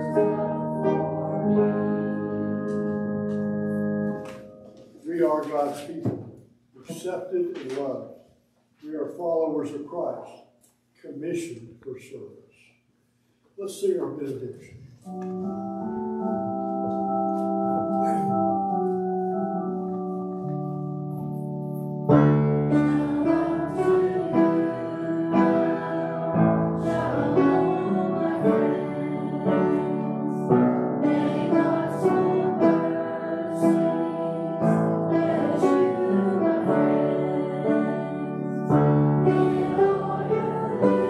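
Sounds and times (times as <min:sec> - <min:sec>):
keyboard accompaniment: 0:00.0 - 0:06.0, 0:15.0 - 0:41.0
congregation singing a hymn: 0:00.0 - 0:07.9, 0:15.1 - 0:41.0.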